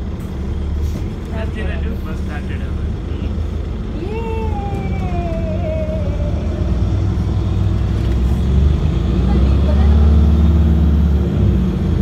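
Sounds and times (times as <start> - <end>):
bus drivetrain rumble: 0.0 - 12.0
rising and falling whine: 4.2 - 7.9.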